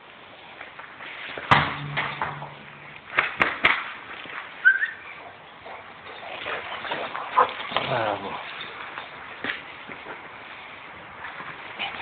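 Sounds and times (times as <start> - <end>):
ball kicked with hollow ring: 1.5 - 3.7.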